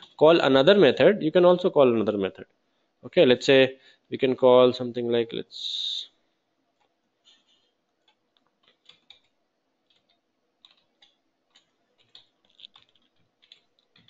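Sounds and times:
keyboard and mouse clicks: 0:06.8 - 0:14.0.

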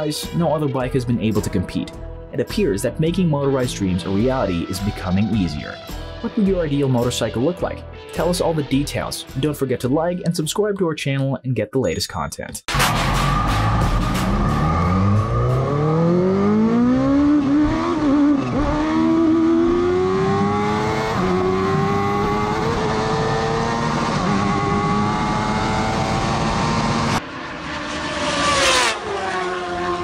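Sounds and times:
motorcycle engine accelerating: 0:12.7 - 0:30.0.

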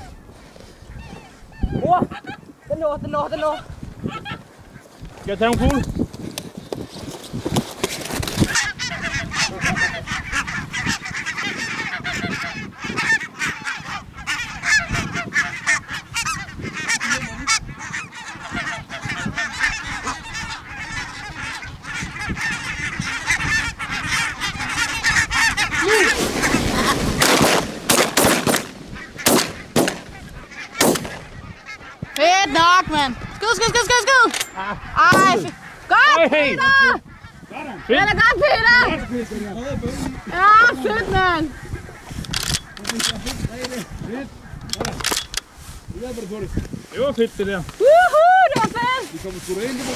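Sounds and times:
geese calling: 0:00.0 - 0:06.8, 0:07.8 - 0:49.9
shotgun shots: 0:27.2 - 0:30.1, 0:30.8 - 0:31.3.

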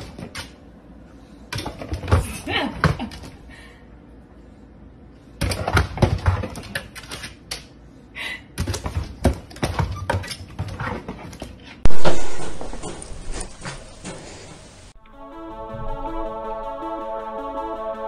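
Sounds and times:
sudden loud sound: 0:11.9 - 0:13.6.

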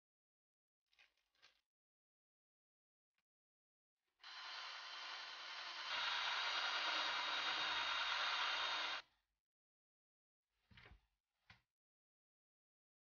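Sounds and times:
cordless drill whirring: 0:04.2 - 0:09.0.

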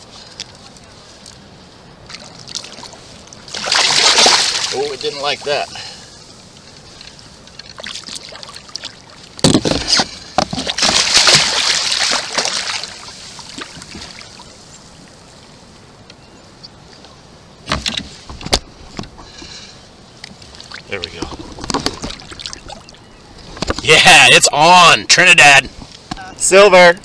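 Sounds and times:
fish thrashing and splashing: 0:02.1 - 0:05.0, 0:07.5 - 0:14.4.

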